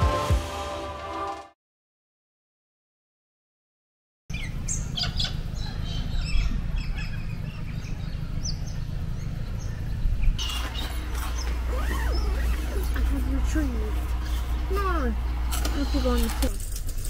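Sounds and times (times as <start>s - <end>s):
birds chirping: 4.3s - 16.6s.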